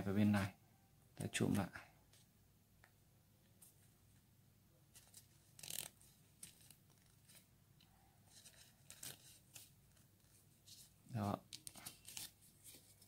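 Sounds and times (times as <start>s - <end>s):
paper rustling as it is folded: 4.9s - 7.5s, 8.3s - 13.0s.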